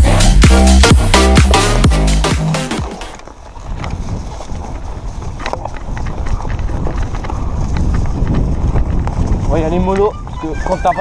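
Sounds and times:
dance music: 0.0s - 3.2s
mountain bike rolling on rough trail: 2.9s - 11.0s
wind buffeting microphone: 3.2s - 11.0s.

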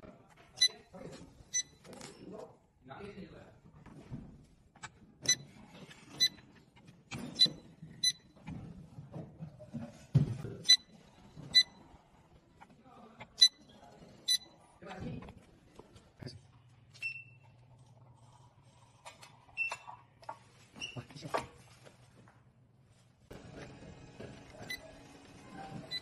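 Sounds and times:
printer beeping: 23.3s - 26.0s.

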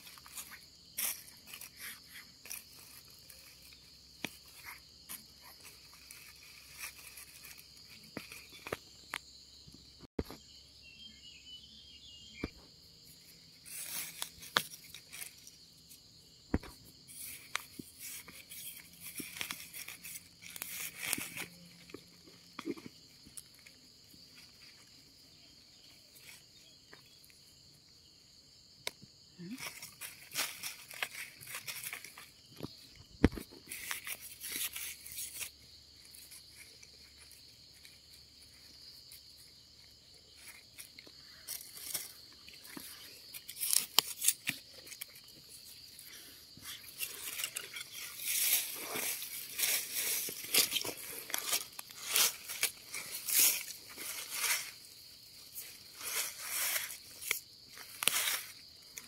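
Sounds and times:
hands rustling through dry leaves: 0.0s - 8.8s, 13.6s - 15.6s, 17.1s - 22.4s, 29.5s - 32.4s, 39.4s - 59.0s
night insects chirring: 0.0s - 59.0s.

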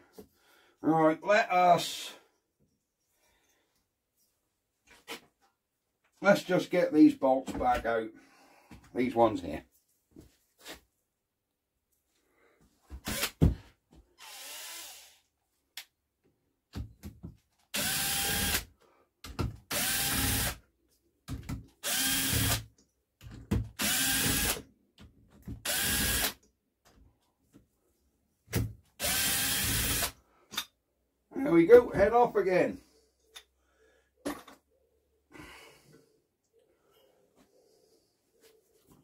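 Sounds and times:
power drill spinning: 13.0s - 13.5s, 14.2s - 15.3s, 17.7s - 18.7s, 19.7s - 20.6s, 21.8s - 22.7s, 23.8s - 24.6s, 25.6s - 26.4s, 29.0s - 30.2s.

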